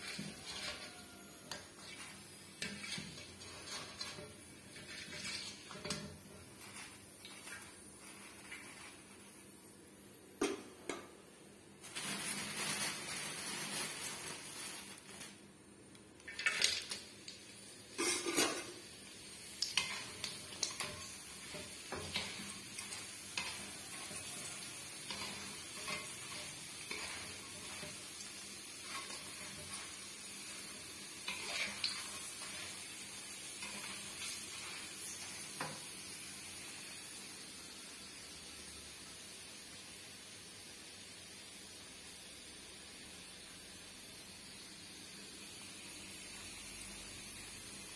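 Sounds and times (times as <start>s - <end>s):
strainer scraping metal wok: 0.0s - 9.3s, 11.9s - 15.2s, 17.9s - 18.9s, 19.8s - 35.8s
food sizzling in hot oil: 0.0s - 10.1s, 11.8s - 15.4s, 16.3s - 47.9s.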